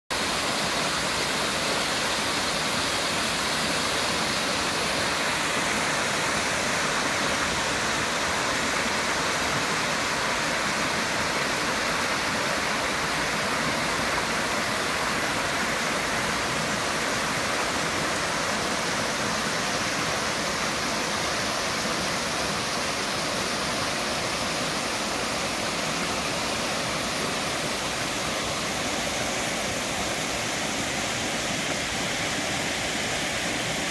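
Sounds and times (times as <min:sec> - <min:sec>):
waterfall rushing over rocks: 0:00.1 - 0:33.9.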